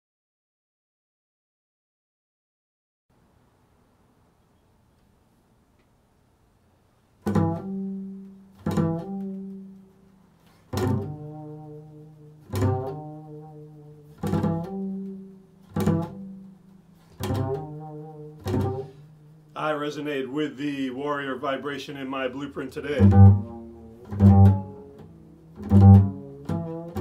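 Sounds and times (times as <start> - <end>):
double bass plucked notes: 7.2 - 20.2, 22.8 - 27.0.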